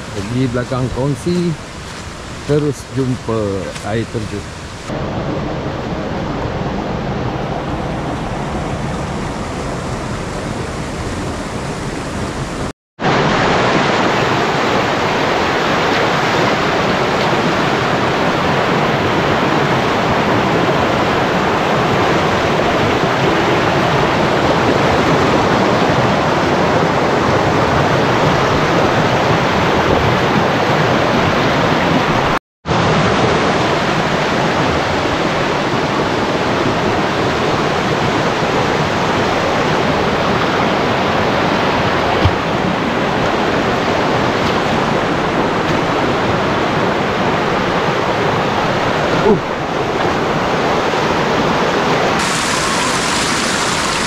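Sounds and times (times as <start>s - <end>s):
waterfall rushing: 0.0s - 5.4s, 26.3s - 54.0s.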